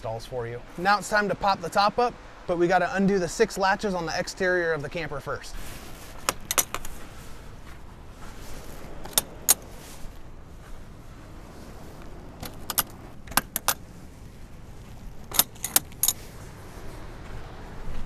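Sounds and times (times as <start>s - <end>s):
metal latches clicking: 6.3s - 6.9s, 12.4s - 13.8s, 15.2s - 16.2s.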